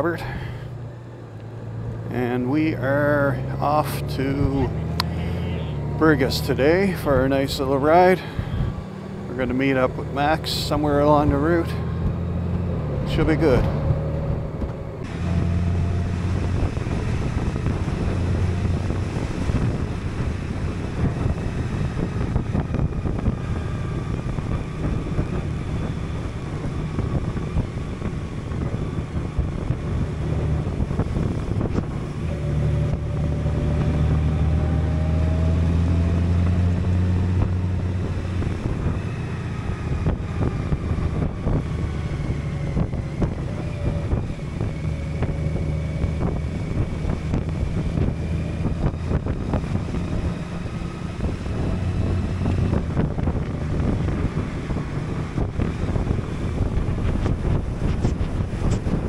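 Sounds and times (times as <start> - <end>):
wind rushing over microphone: 1.6 - 59.0
motorcycle engine running: 14.6 - 59.0.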